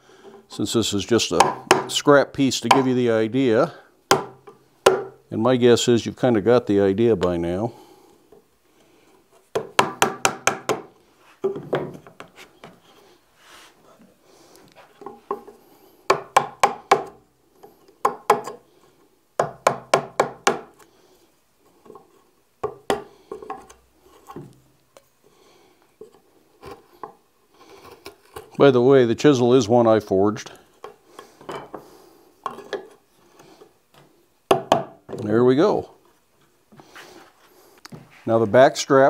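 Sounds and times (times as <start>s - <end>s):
chisel tapping into wood: 1.4s - 2.0s, 2.7s - 2.9s, 4.1s - 5.2s, 9.5s - 12.8s, 16.1s - 17.2s, 18.0s - 18.6s, 19.4s - 20.7s.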